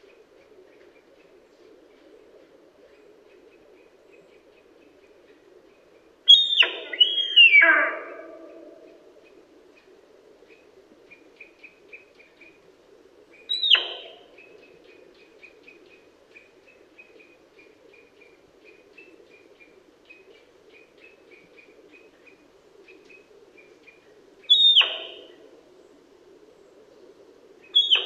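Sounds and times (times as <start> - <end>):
deer stag whistling: 6.3 - 8.7.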